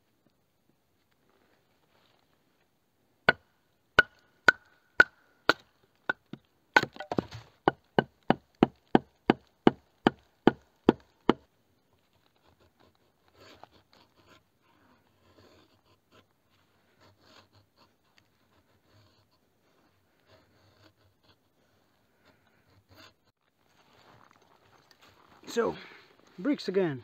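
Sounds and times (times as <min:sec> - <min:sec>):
blade chopping wood: 0:04.0 - 0:11.4.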